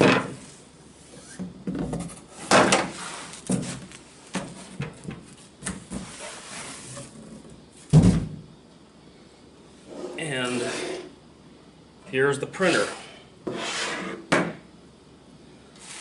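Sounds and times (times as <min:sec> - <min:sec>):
short scrapes and knocks: 0:09.9 - 0:11.1, 0:12.6 - 0:14.4.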